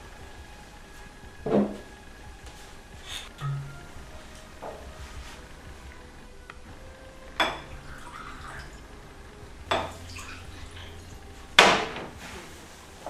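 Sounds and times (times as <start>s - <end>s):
glass clinking on glass: 3.4s - 4.0s
wine pouring into glasses: 7.1s - 11.2s.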